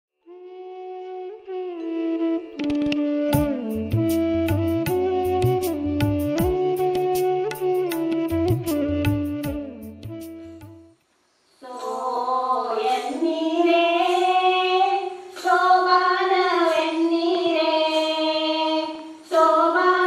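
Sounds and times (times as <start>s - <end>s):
women singing folk song: 11.6s - 20.0s.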